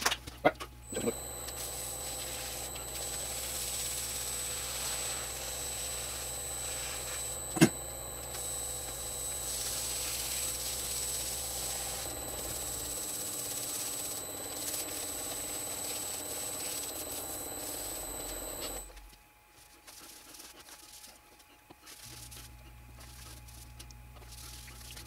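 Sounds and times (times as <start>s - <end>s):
wood lathe whining: 0.9s - 18.9s.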